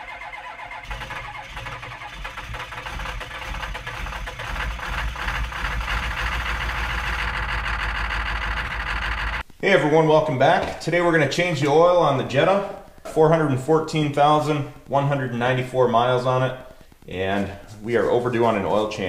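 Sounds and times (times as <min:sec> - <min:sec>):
car engine running: 0:00.8 - 0:09.4.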